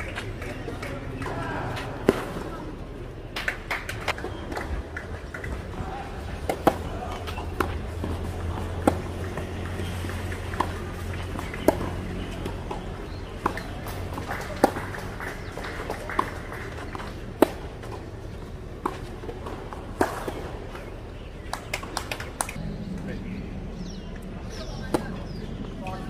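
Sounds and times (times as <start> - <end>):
outdoor background noise: 0.0 - 26.0
racket hitting ball: 0.8 - 2.5, 6.4 - 20.9
tennis ball bouncing: 6.4 - 22.6.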